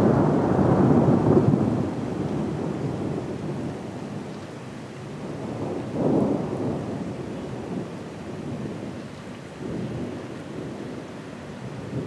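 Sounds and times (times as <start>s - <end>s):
rolling thunder: 0.0s - 4.2s, 5.2s - 9.0s
steady rain: 0.0s - 12.0s.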